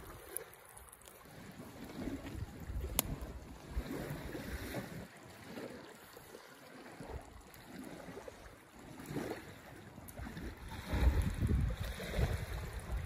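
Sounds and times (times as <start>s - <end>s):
wind buffeting microphone: 1.4s - 5.0s, 10.1s - 13.0s.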